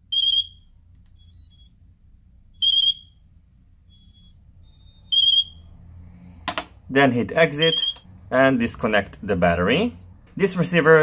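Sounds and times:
faint high electronic chirps: 0.2 - 1.8, 2.6 - 3.2, 3.9 - 5.6
short high wavering beep: 1.2 - 1.8, 2.6 - 3.2, 3.9 - 5.6.

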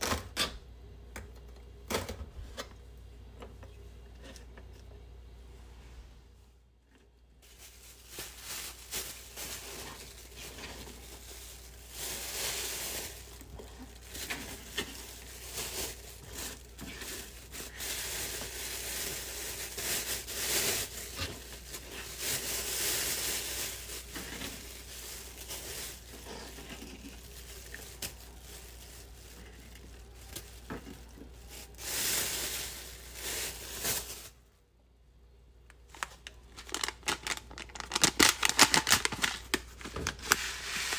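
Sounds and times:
plastic bag crinkling: 7.4 - 34.4, 35.8 - 40.9.

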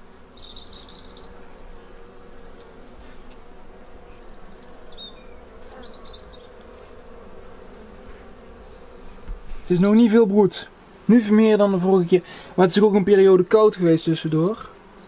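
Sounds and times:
honeybees humming: 0.0 - 15.0
high bird chirps: 4.5 - 6.5, 8.6 - 9.7, 14.4 - 15.0.

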